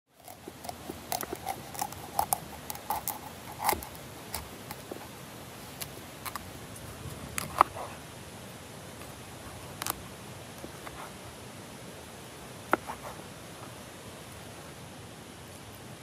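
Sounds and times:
knife cutting chicken on wooden board: 0:00.2 - 0:05.1.

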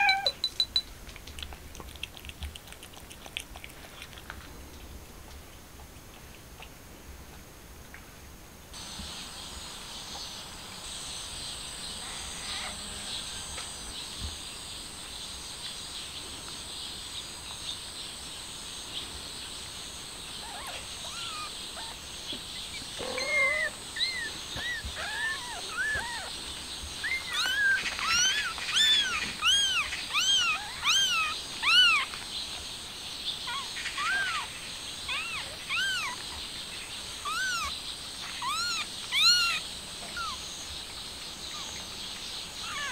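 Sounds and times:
high-pitched background hiss: 0:07.6 - 0:42.9
kittens mewing: 0:20.4 - 0:22.0, 0:22.7 - 0:26.4, 0:27.0 - 0:32.2, 0:33.4 - 0:34.5, 0:35.1 - 0:36.4, 0:37.2 - 0:40.4.

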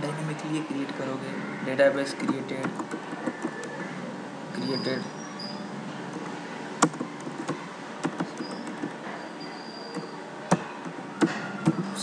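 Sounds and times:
keyboard typing clicks: 0:02.2 - 0:03.7, 0:06.1 - 0:09.0.

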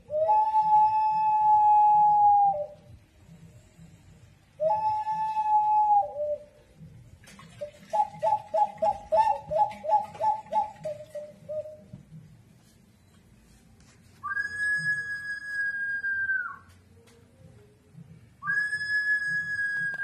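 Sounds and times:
clay vessel whistling: 0:00.0 - 0:02.9, 0:04.6 - 0:06.6, 0:07.6 - 0:11.9, 0:14.2 - 0:16.7, 0:18.4 - 0:20.0.

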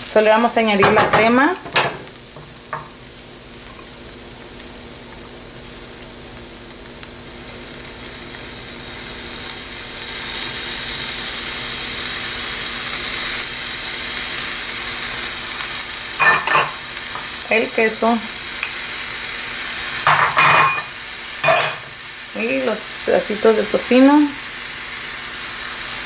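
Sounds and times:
cauliflower sizzling in a frying pan: 0:00.0 - 0:26.0
knocks on pan: 0:00.8 - 0:03.0.

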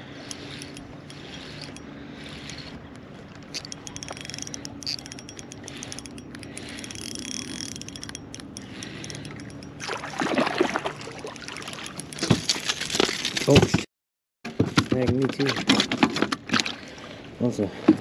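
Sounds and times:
fishing reel whirring and clicking: 0:00.0 - 0:12.3
fish splashing and thrashing: 0:00.1 - 0:13.8, 0:15.4 - 0:17.2.

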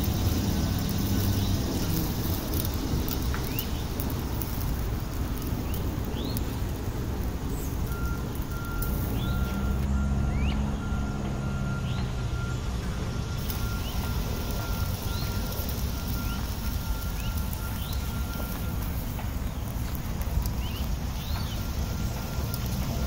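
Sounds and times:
vehicle engine humming: 0:00.0 - 0:23.0
bird chirps: 0:07.5 - 0:10.7, 0:13.4 - 0:18.7, 0:20.5 - 0:22.2.

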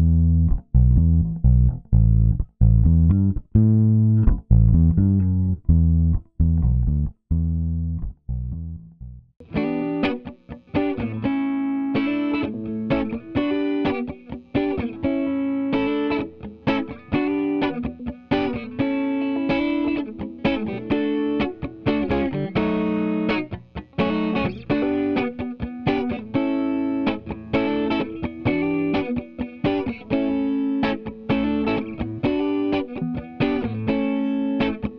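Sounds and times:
electric guitar riff: 0:09.4 - 0:34.9.

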